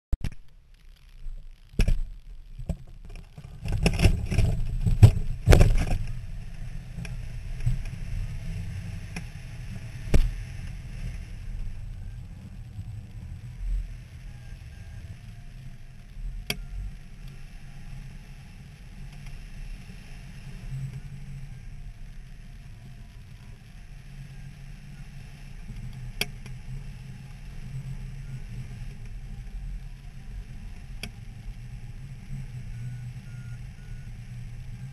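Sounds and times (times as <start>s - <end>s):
wind rushing over microphone: 1.6s - 34.9s
faint clicks: 16.0s - 17.6s, 19.0s - 19.4s, 25.2s - 31.6s.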